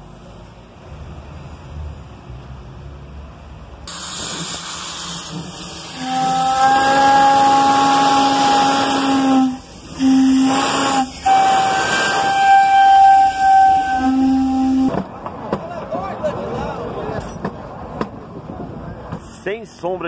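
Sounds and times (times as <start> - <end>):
steam hissing: 3.9 - 14.9
steam locomotive whistle blasts: 3.9 - 15.0.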